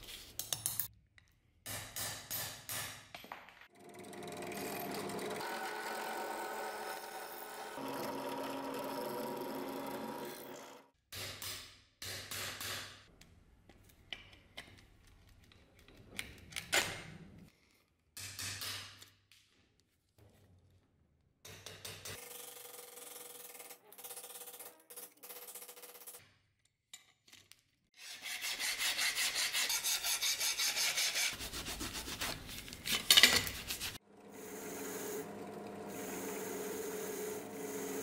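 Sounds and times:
power tool buzzing on metal: 3.8s - 10.8s, 34.1s - 38.0s.

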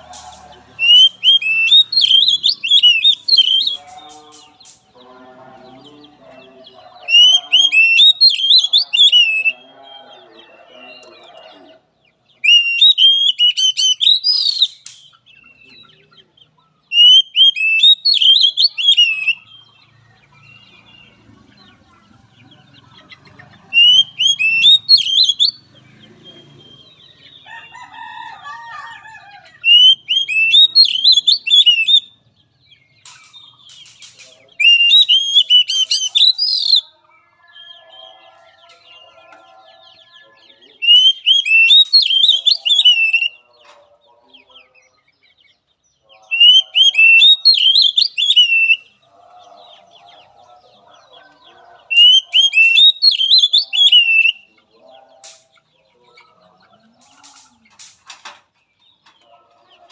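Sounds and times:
bird singing whistled notes: 0.8s - 4.0s, 7.1s - 9.6s, 12.4s - 15.8s, 16.9s - 19.6s, 23.8s - 25.6s, 29.7s - 32.2s, 33.2s - 36.9s, 40.8s - 43.4s, 46.4s - 49.0s, 52.0s - 54.5s.

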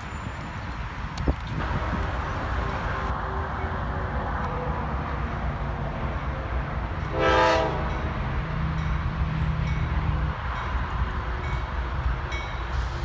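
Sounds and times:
locomotive air horn blast: 7.1s - 8.0s.

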